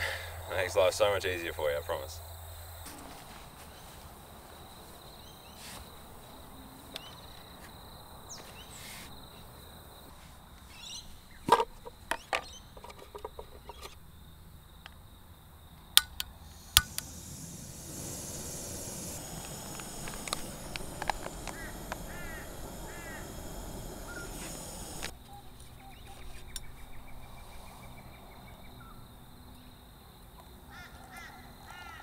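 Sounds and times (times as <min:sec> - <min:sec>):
high insect trill: 0:00.0 - 0:26.0
bird chirps: 0:13.5 - 0:14.0, 0:19.3 - 0:29.0
soft hiss: 0:16.3 - 0:25.7.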